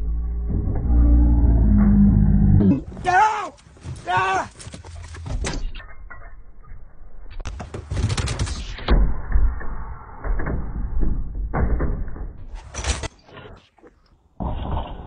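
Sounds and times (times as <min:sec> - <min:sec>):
low microphone rumble: 0:00.0 - 0:02.9.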